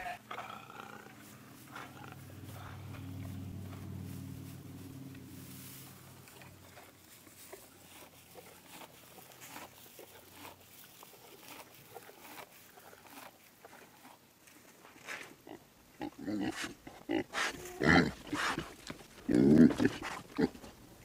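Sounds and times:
animals pattering on carpet: 17.4 - 21.0.

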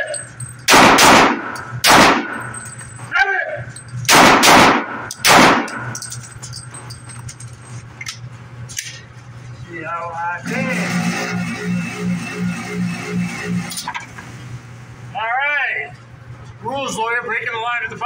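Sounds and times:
pistol shots echoing indoors: 0.7 - 2.6, 4.1 - 6.0.

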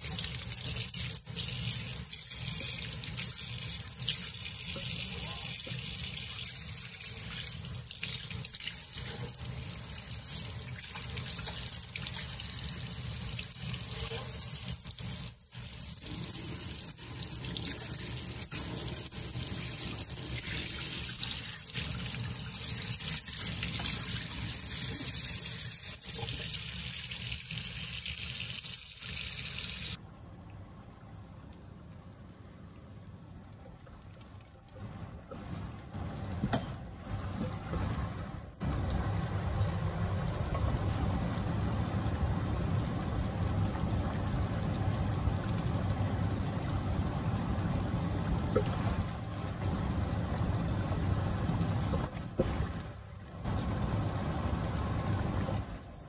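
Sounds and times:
water spraying into sink: 0.0 - 30.0.

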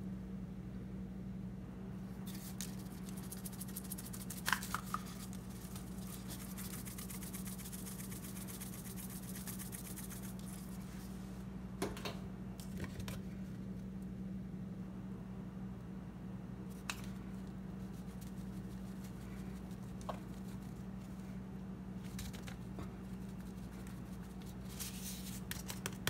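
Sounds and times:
steady low hum: 0.0 - 26.0
seasoning rattling in shaker bottle: 2.3 - 10.7.

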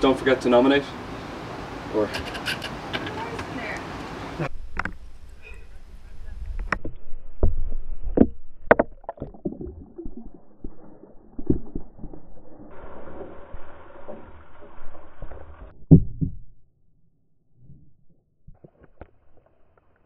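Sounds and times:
ice water pouring and splashing: 8.9 - 15.7.

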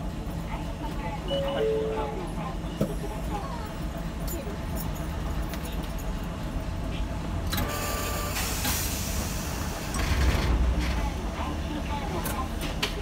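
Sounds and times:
tram wheels and motor rumble: 0.0 - 13.0
brief high tone: 1.3 - 2.4.

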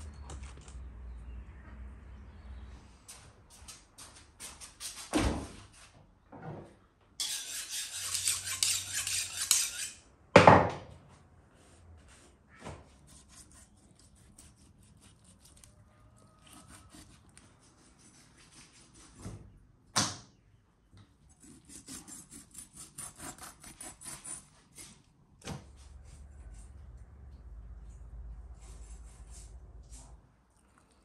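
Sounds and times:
knife slicing into meat: 13.1 - 15.7, 16.4 - 19.2, 21.4 - 25.0.

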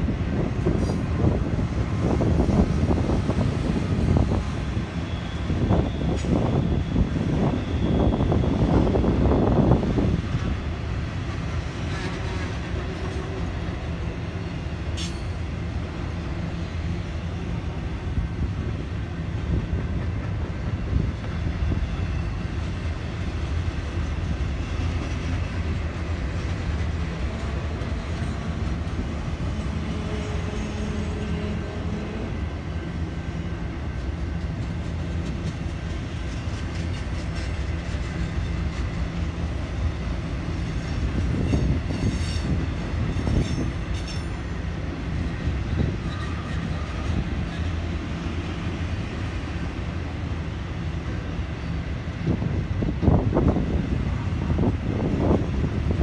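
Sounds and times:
steel wheels rumbling on rail: 0.0 - 56.0.

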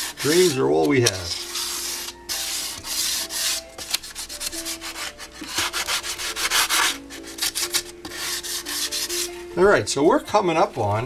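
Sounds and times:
sanding block hissing strokes: 0.0 - 0.6, 1.3 - 3.6, 4.2 - 9.3.

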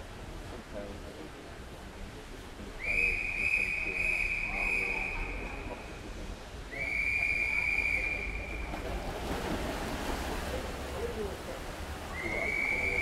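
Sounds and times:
high-pitched whistle tone: 2.8 - 5.7, 6.7 - 8.6, 12.1 - 13.0
swimmers splashing: 7.0 - 13.0.

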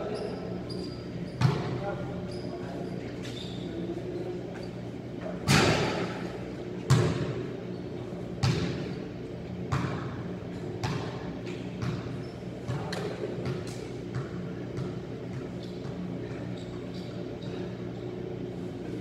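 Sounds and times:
low hum in large hall: 0.0 - 19.0
basketball bouncing on gym floor: 1.3 - 1.9, 6.8 - 7.5, 8.3 - 9.0, 9.6 - 16.9.

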